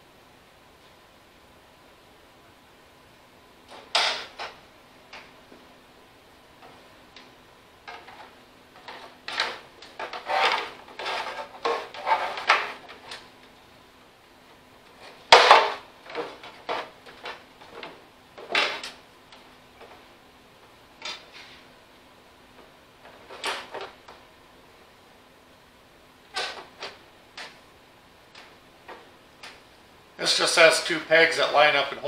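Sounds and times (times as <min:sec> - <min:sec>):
plastic scraping and clattering: 0:07.9 - 0:13.3, 0:15.0 - 0:19.0, 0:23.0 - 0:24.0.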